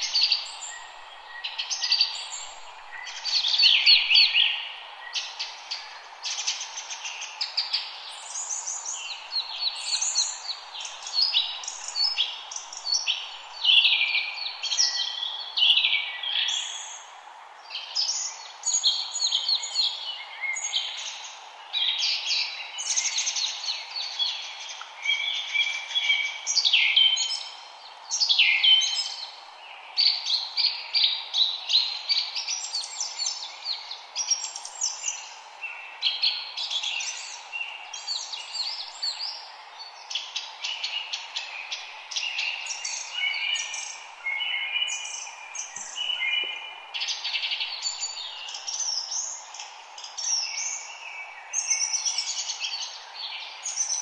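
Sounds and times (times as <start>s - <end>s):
wren singing trills: 0.0s - 17.0s
steady background hiss: 0.0s - 54.0s.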